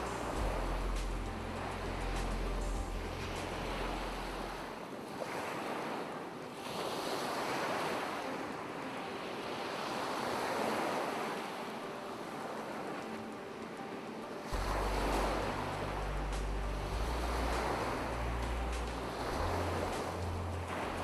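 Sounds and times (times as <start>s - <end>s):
low steady hum: 0.0s - 4.7s, 14.6s - 21.0s
waves breaking on a shore: 0.0s - 21.0s.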